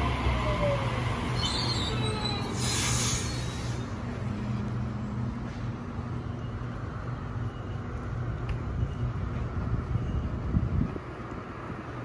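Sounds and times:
electric train hum: 0.0 - 12.0
wheel and rail noise: 0.0 - 12.0
short hiss burst: 2.6 - 3.8.

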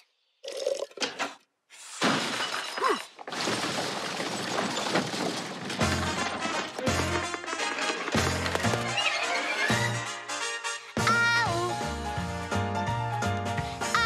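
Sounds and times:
something shattering: 2.0 - 9.0.

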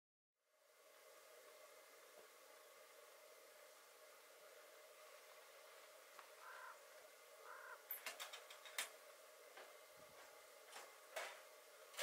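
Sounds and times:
faint bird calls: 6.3 - 8.0.

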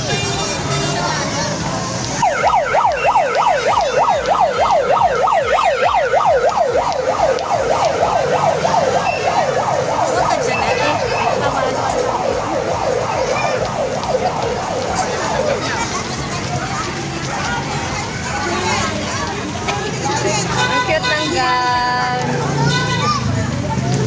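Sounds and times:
electronic siren yelping: 2.2 - 15.8.

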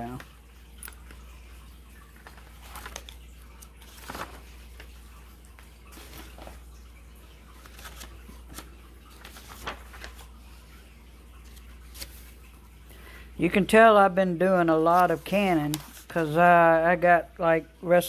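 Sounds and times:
paper rustling: 2.1 - 10.8, 11.4 - 12.5, 14.5 - 16.5.

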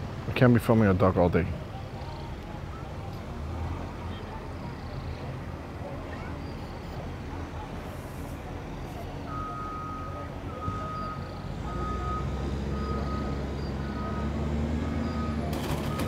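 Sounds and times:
low engine rumble: 0.0 - 16.0
reversing alarm beeping: 9.3 - 16.0.

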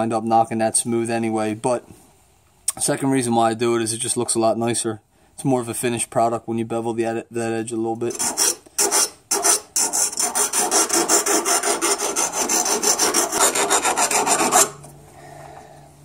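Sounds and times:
file rasping on steel: 8.1 - 14.8.

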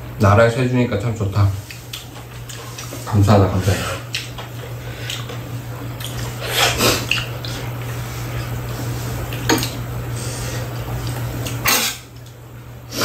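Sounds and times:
steady low hum: 0.0 - 13.0
cutlery clinking against bowls: 9.4 - 9.8.

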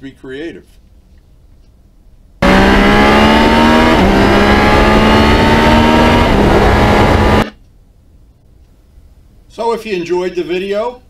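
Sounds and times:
engine accelerating through gears: 2.4 - 7.5.

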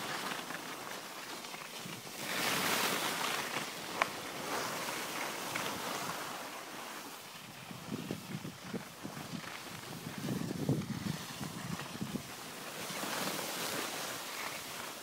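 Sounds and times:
skis sliding over snow: 0.0 - 15.0
wind on microphone: 7.4 - 14.0.

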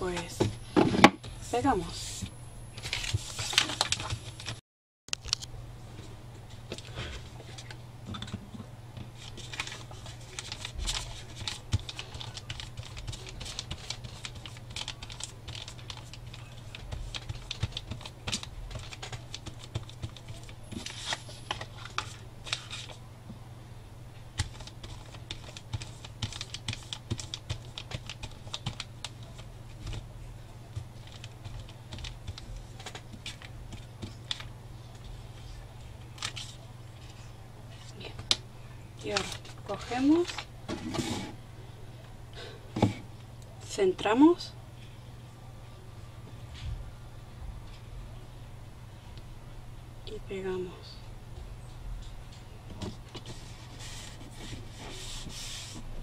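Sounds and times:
brush spreading glue on paper: 53.3 - 55.9.

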